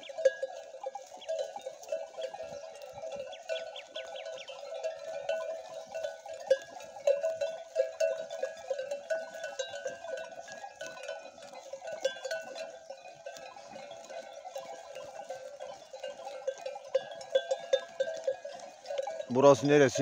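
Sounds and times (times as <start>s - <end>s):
livestock bells clanking: 0.0s - 20.0s.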